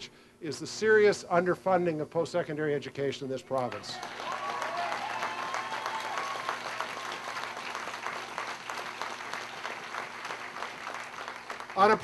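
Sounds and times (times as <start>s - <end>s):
crowd applauding: 3.6s - 12.0s.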